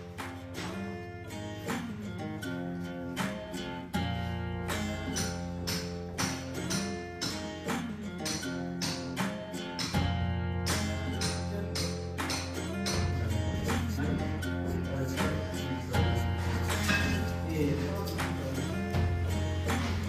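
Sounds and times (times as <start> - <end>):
acoustic guitar strumming: 0.0 - 20.0
low bass notes: 10.0 - 20.0.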